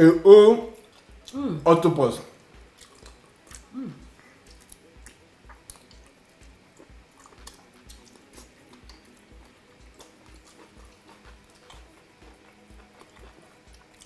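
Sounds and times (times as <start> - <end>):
faint low beat: 0.0 - 14.0
person humming mm: 1.3 - 1.7, 3.6 - 4.6
wet chewing: 2.6 - 14.0
lip smacks: 2.8 - 9.2.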